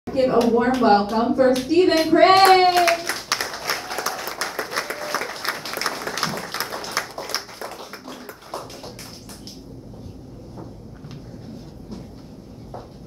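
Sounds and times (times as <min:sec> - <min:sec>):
audience applauding: 0:02.0 - 0:09.6.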